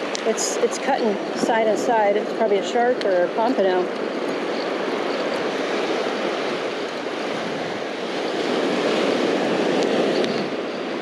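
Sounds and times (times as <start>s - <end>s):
ocean surf breaking on sand: 0.0s - 11.0s.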